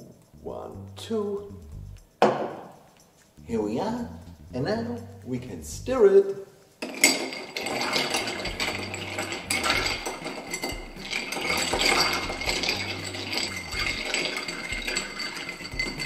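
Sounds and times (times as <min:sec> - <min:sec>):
ice cubes clinking in glass: 0:06.9 - 0:16.0.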